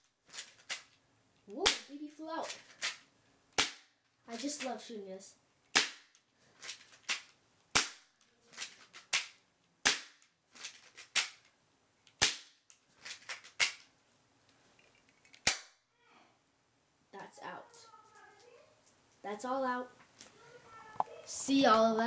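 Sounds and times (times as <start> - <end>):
airsoft pistol snaps: 15.4 - 15.8.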